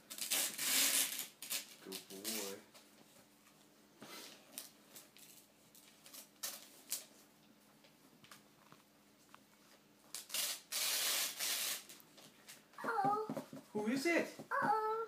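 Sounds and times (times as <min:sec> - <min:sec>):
paper tearing: 0:00.0 - 0:02.6, 0:10.2 - 0:12.0.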